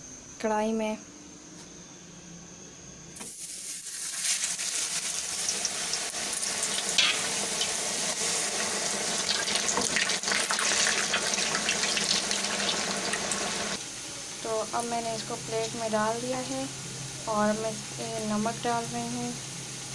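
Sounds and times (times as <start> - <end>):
potatoes sizzling in hot oil: 3.2 - 16.7
metal skimmer stirring in oil: 3.7 - 13.2.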